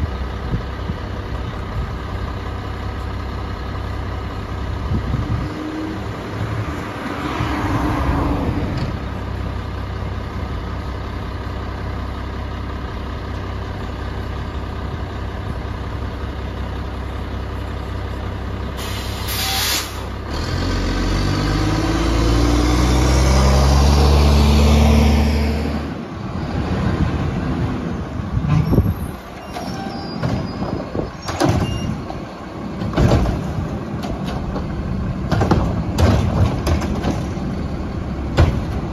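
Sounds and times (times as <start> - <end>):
garbage truck idling: 0.0 - 5.4, 8.9 - 20.3, 29.1 - 38.9
air brake hiss: 18.8 - 20.1
engine revving: 20.3 - 26.0
metal clanks and bangs: 29.4 - 37.5, 38.3 - 38.9.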